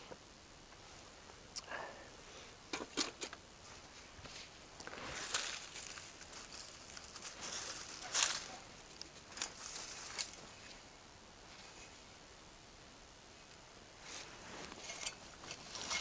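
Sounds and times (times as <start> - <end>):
dry leaves rustling and scraping: 3.6 - 10.9, 14.0 - 16.0.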